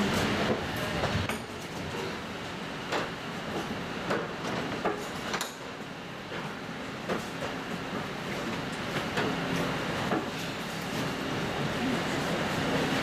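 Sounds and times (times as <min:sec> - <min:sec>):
tram rumbling: 0:00.0 - 0:04.9.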